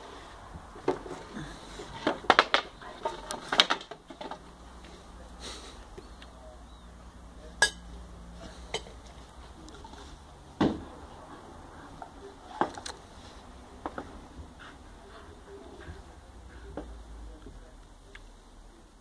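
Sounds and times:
brush knocking and clattering: 0.6s - 4.6s.

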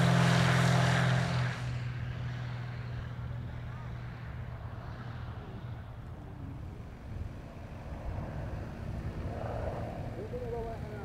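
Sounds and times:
distant propeller plane engine: 0.0s - 11.0s.

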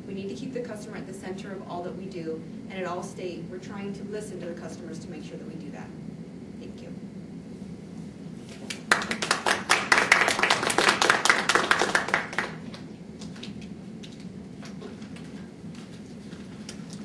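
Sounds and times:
small audience clapping: 8.5s - 13.6s.

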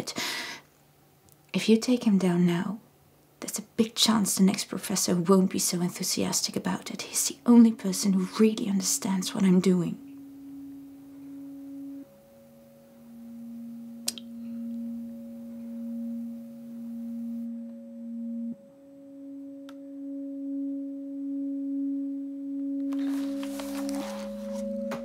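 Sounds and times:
steady higher tone: 7.4s - 25.0s
low drone tone: 8.3s - 25.0s.

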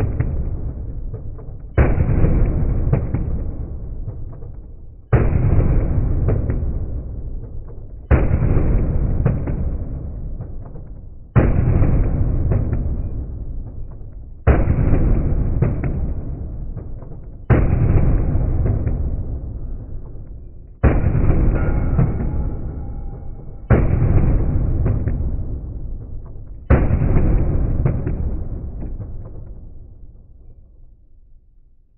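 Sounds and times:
pistol shots echoing indoors: 0.0s - 31.9s.

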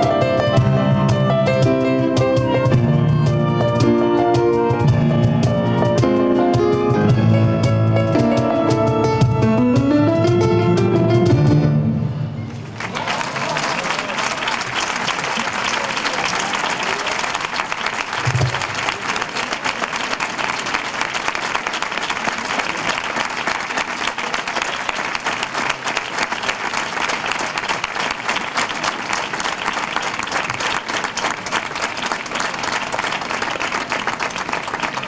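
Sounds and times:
audience applauding: 12.5s - 35.0s.

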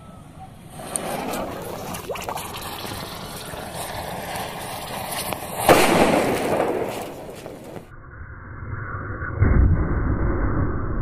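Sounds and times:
fuse fizzing and crackling: 0.9s - 7.9s.

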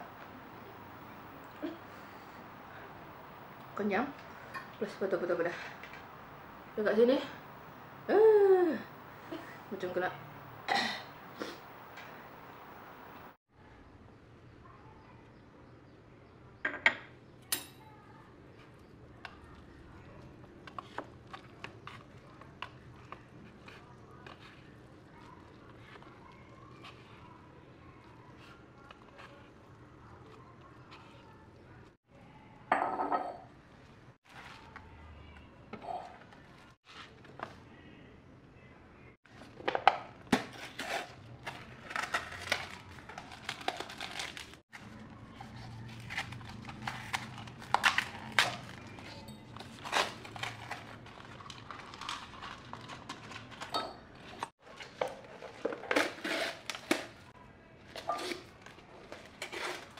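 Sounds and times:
plastic packaging crinkling: 40.5s - 54.4s
plastic fork scraping cup: 58.0s - 59.9s.

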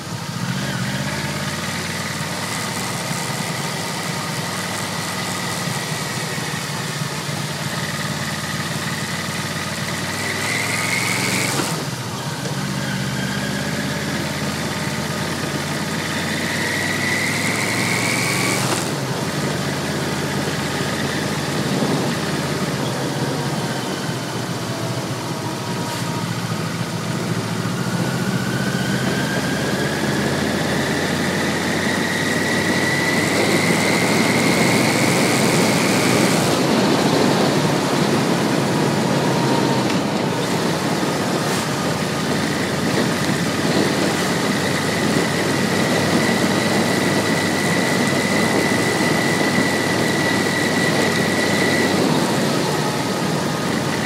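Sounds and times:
motorcycle engine accelerating: 0.0s - 54.0s
wind rush: 31.1s - 54.0s.

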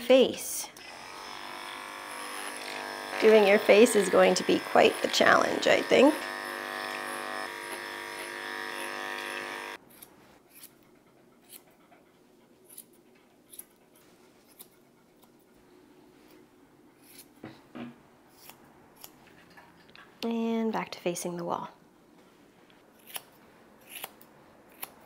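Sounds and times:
electric clippers buzzing: 0.8s - 9.8s
scissors snipping hair: 2.2s - 10.8s, 11.4s - 11.8s, 12.6s - 13.8s, 14.4s - 15.4s, 17.0s - 17.4s, 18.3s - 19.2s, 23.0s - 25.0s.

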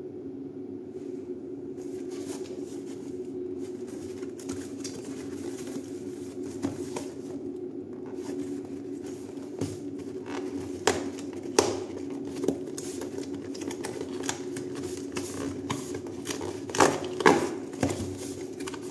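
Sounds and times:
steady low hum: 0.0s - 18.9s
cardboard box scraping and tapping: 3.7s - 7.4s, 8.1s - 18.9s.

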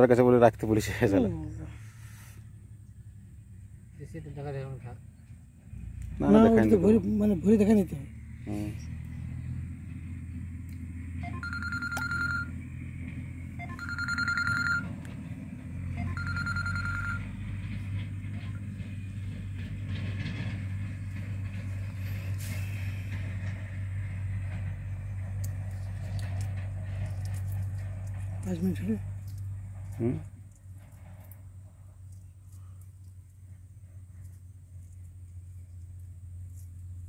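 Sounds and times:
electronic beeps: 11.2s - 12.6s, 13.6s - 14.9s, 15.9s - 17.3s.

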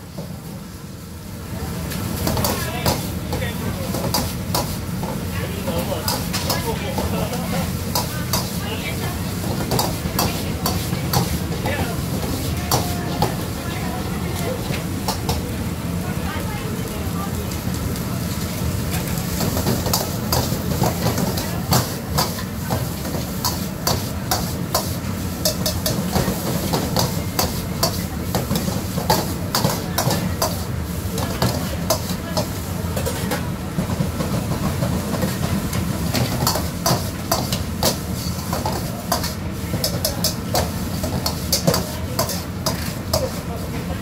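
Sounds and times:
metal utensils scraping a wok: 3.9s - 13.4s, 19.0s - 33.4s, 34.3s - 43.8s.

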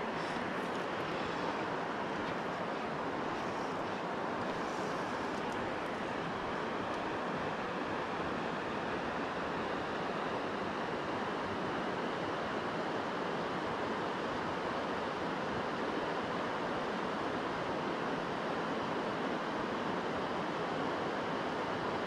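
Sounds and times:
river water rushing: 0.0s - 22.0s.

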